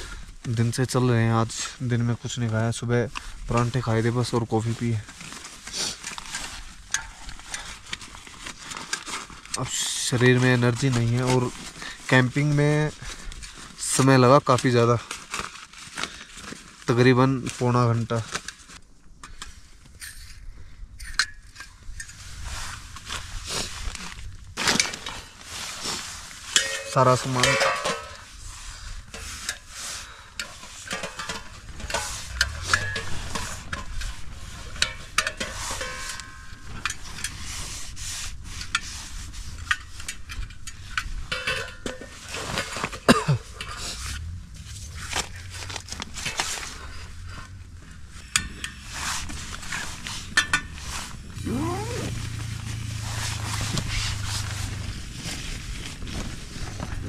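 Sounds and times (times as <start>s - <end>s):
rustling: 0.0s - 18.8s, 21.8s - 57.0s
metal cookware clinking and clattering: 26.6s - 28.2s, 30.5s - 34.0s, 34.8s - 36.5s, 41.3s - 43.8s.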